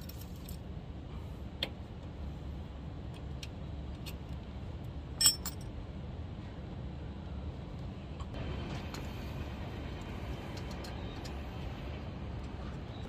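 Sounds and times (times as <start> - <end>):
low steady hum: 0.0 - 13.0
light metallic clicks and clinks: 5.2 - 5.7.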